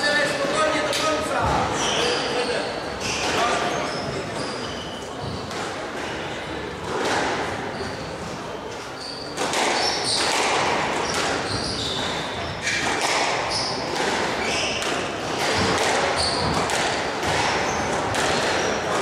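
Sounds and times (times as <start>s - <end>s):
shoes squeaking on wooden floor: 0.5s - 5.6s, 7.6s - 12.8s, 16.2s - 16.7s
squash ball striking rackets and walls: 3.0s - 8.0s, 9.1s - 19.0s.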